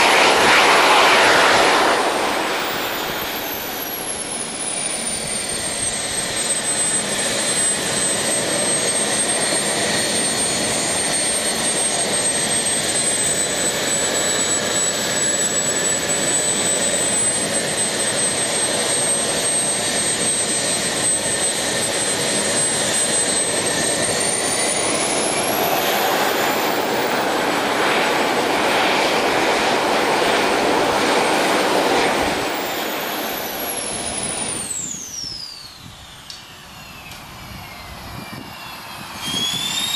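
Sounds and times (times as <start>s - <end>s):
rushing exhaust noise: 0.0s - 5.2s, 23.1s - 37.3s
jet turbine whine: 0.0s - 39.9s.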